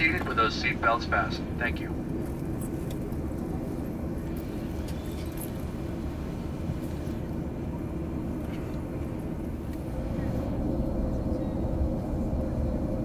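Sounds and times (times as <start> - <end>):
aircraft cabin engine rumble: 0.0 - 13.0.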